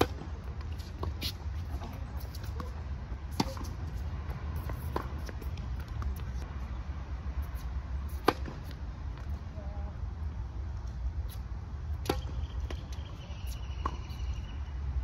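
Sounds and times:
tennis ball hit by racket: 0.0s - 6.4s, 8.1s - 8.8s.

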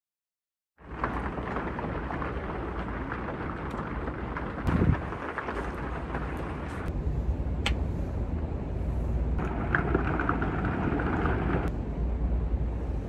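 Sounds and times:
steady rain: 0.8s - 7.0s, 9.4s - 11.8s
low rumble: 0.8s - 13.0s.

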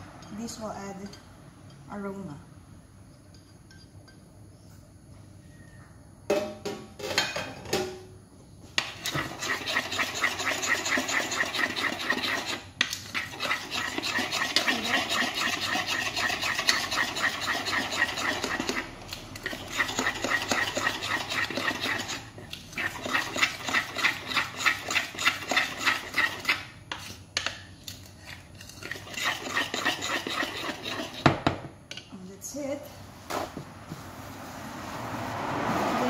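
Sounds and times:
spoon beating batter in glass bowl: 8.8s - 28.0s, 28.6s - 31.4s.

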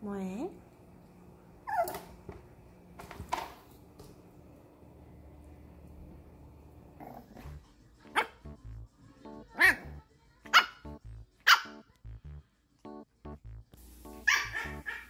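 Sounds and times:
puppy yapping: 1.6s - 2.1s, 14.3s - 15.0s
background music with steady beat: 7.5s - 15.0s.

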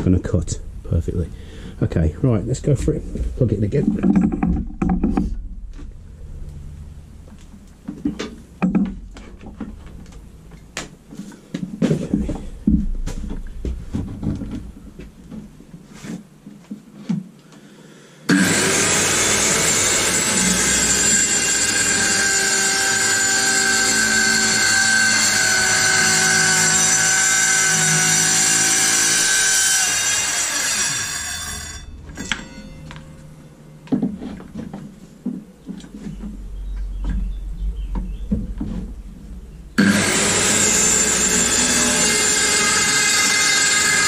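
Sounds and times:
handling knocks and clicks: 3.8s - 5.9s
circular saw cutting plywood: 18.3s - 32.9s, 39.8s - 44.0s.

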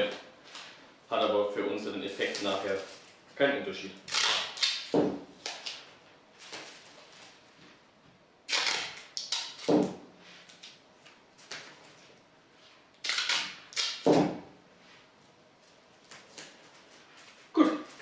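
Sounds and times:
duct tape ripping: 4.0s - 6.8s, 8.5s - 10.8s, 13.0s - 14.3s.

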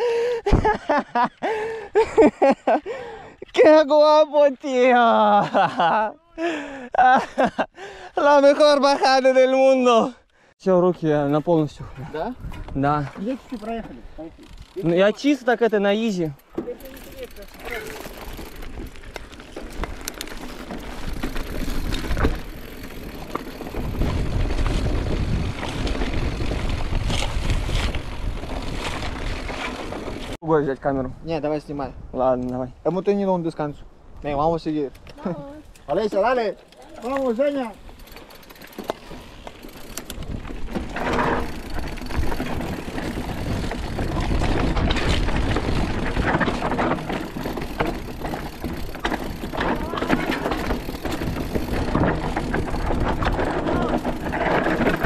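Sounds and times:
wind buffeting microphone: 11.7s - 14.8s, 18.1s - 30.4s, 39.7s - 55.0s
bike clicks rattling: 12.4s - 24.8s, 34.9s - 55.0s.

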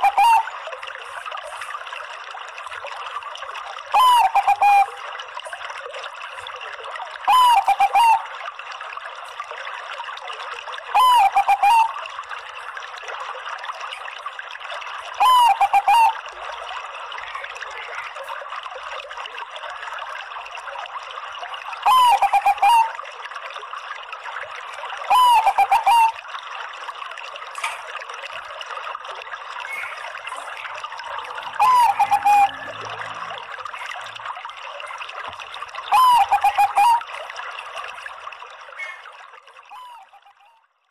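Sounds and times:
dove cooing: 15.2s - 16.2s, 25.1s - 26.1s, 31.2s - 32.6s, 35.9s - 37.0s.

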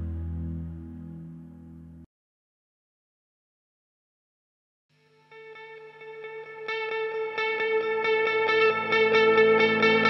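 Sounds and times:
background music with low notes: 0.0s - 2.0s, 5.0s - 10.0s.

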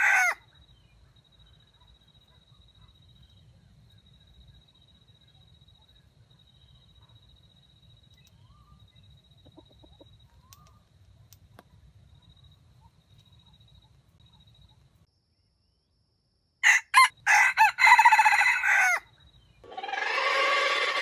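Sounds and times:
rooster crowing: 0.0s - 0.4s, 16.6s - 19.1s, 19.7s - 21.0s.

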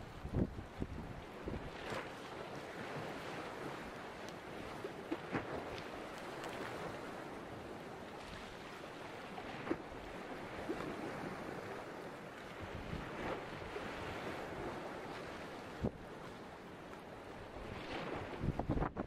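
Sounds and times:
wind on microphone: 0.0s - 2.1s, 12.6s - 16.4s, 17.4s - 19.0s
sea water lapping: 0.0s - 19.0s.

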